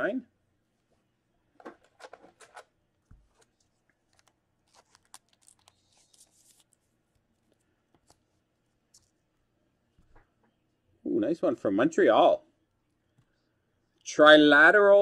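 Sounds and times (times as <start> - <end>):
trading cards handled on table: 1.6 - 9.2.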